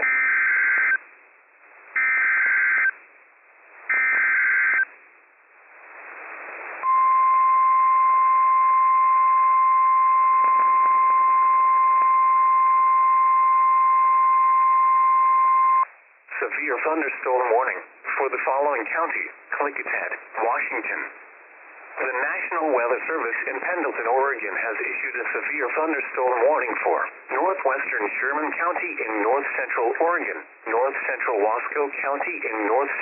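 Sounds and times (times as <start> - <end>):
radio hiss: 3.6 - 4.9, 5.6 - 6.9, 16.3 - 33.0.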